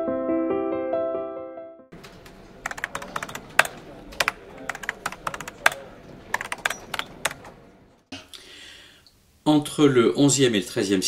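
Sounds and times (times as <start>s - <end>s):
keyboard keys clicking: 2.0s - 7.8s.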